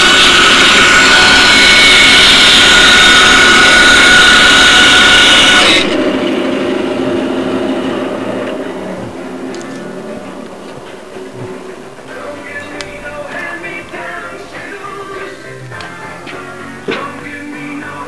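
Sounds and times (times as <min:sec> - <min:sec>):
power tool motor running: 0:00.0 - 0:08.9.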